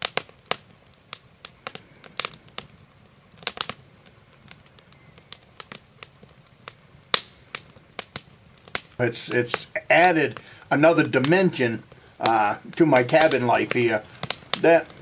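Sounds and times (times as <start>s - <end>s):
sharp clicks and pops: 7.1s - 15.0s.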